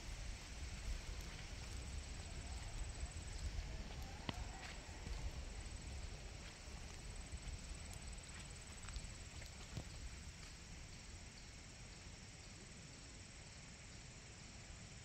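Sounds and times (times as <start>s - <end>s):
wind rumble on microphone: 0.0s - 11.2s
faint footsteps: 0.4s - 11.1s.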